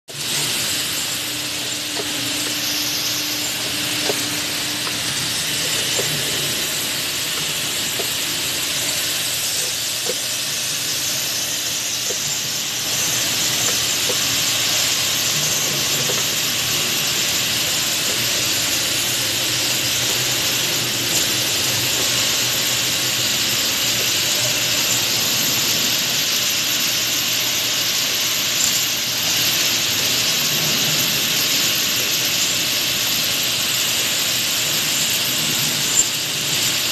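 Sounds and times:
factory machines droning: 0.1 - 36.9.

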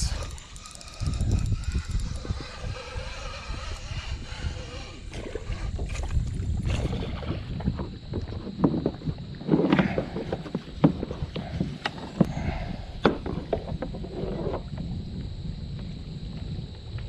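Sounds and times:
wind rumble on microphone: 0.0 - 17.0
water lapping against kayak hull: 4.1 - 17.0.

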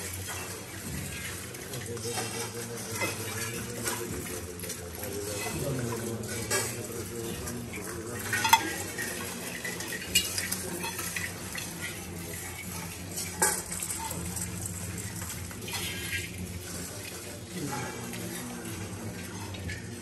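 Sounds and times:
rice pouring on metal plates: 0.0 - 20.0
metal rings clinking: 8.1 - 17.0.

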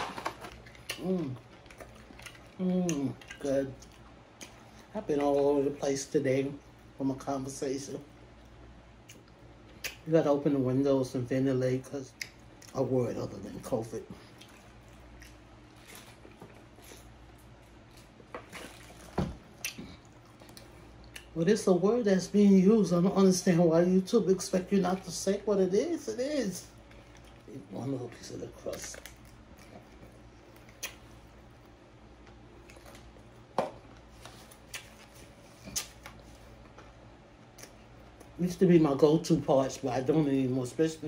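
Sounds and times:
chewing crunchy food: 0.0 - 7.0, 12.1 - 21.4, 26.3 - 38.4.

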